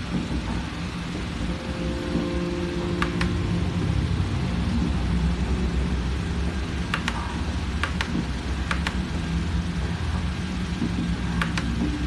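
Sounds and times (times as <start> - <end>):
steady low rumble: 0.0 - 12.0
keyboard key clicks: 3.0 - 3.4, 6.9 - 9.0, 11.4 - 11.8.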